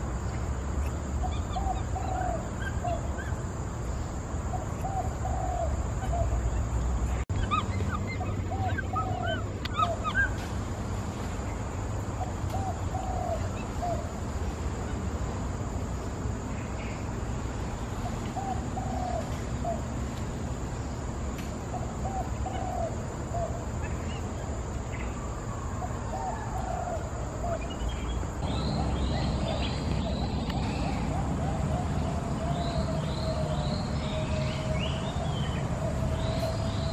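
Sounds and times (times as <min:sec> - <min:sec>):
animal calling: 0:07.3 - 0:10.4
steady low rumble: 0:27.1 - 0:36.9.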